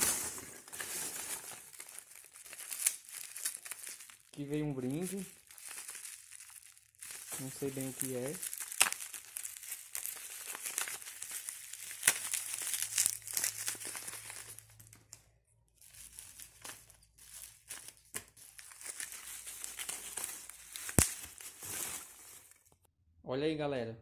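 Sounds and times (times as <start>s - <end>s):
packing peanuts rustling and crunching: 0.0s - 15.2s, 15.8s - 22.8s
bubble wrap crinkling: 0.0s - 22.8s.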